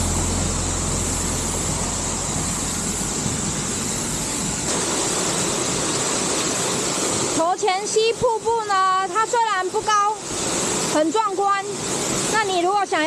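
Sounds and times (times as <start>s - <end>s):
low hum: 0.0s - 6.0s
waterfall rushing: 0.0s - 13.0s.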